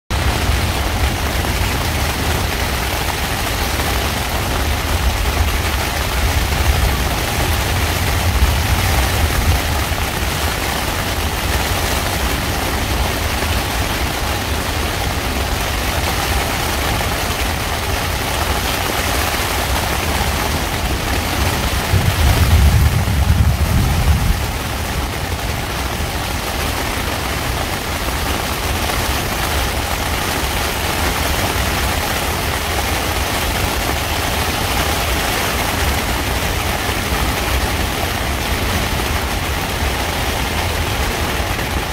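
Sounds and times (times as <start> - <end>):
rain on tent fabric: 0.1 - 41.9
rolling thunder: 4.1 - 13.9, 20.0 - 26.6.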